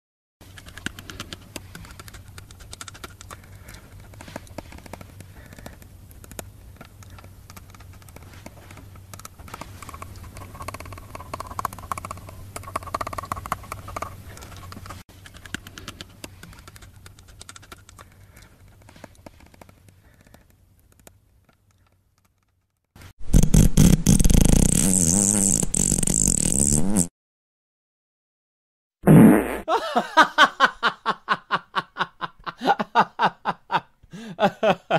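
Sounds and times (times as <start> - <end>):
small clicks and rustles: 0.4 - 23.0
low room hum: 0.4 - 23.2, 29.7 - 34.9.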